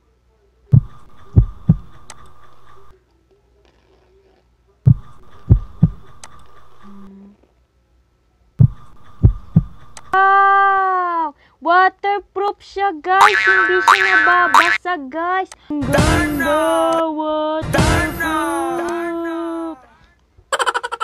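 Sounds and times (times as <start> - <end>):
faint steady hum: 0.0 - 17.6
heartbeat-like thuds: 0.7 - 2.1, 4.9 - 6.1, 8.6 - 10.0.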